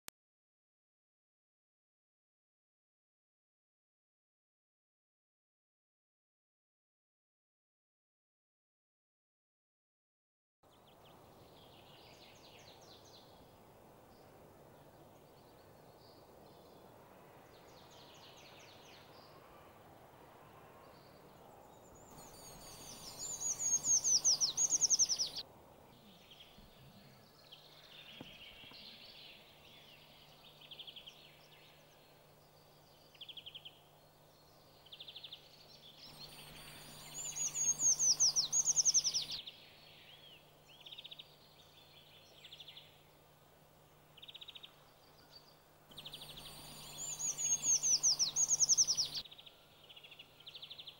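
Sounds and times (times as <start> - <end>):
low background hum: 10.7 - 50.9
bird song descending notes: 14.2 - 50.9
bird chirps and trills: 20.9 - 50.9.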